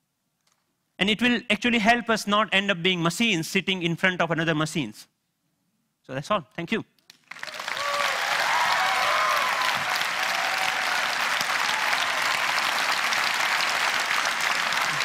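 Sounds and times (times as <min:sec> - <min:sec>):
audience clapping: 0:07.1 - 0:15.0
cheering shouts: 0:07.4 - 0:15.0.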